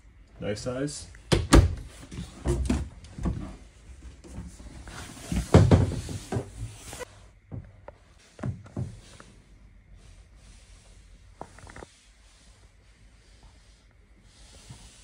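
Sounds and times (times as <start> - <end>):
cabinet doors knocking shut: 5.4 - 6.5.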